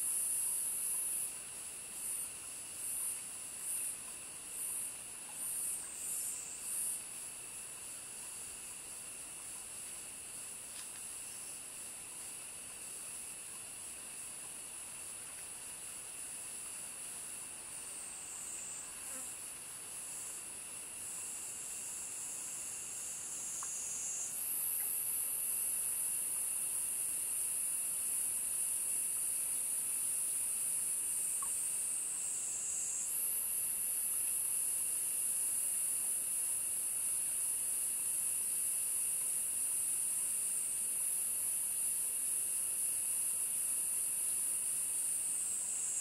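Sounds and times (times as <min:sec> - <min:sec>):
insects trilling: 0:00.0 - 0:46.0.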